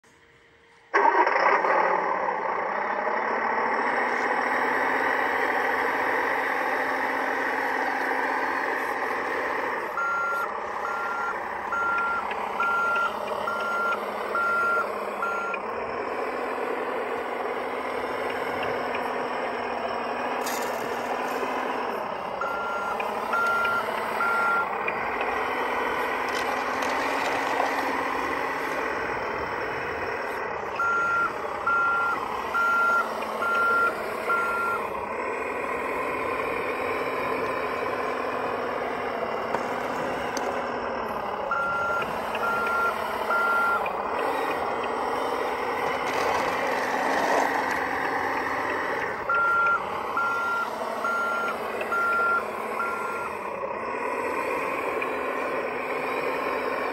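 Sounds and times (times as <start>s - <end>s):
toy loader engine whirring: 0.8s - 56.9s
back-up alarm beeps: 8.5s - 15.7s, 21.8s - 25.4s, 30.7s - 34.8s, 41.5s - 44.0s, 48.4s - 53.4s.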